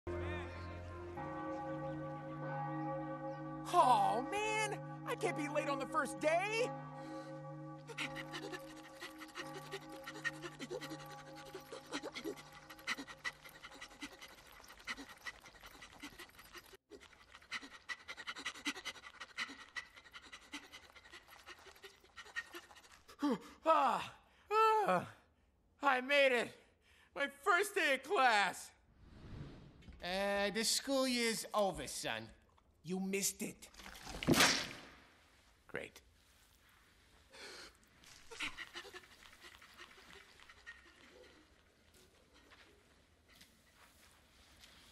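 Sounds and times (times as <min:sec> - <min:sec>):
creature panting with strained grunts: 0:07.9 - 0:23.6
wet squelching and swishing: 0:33.7 - 0:35.0.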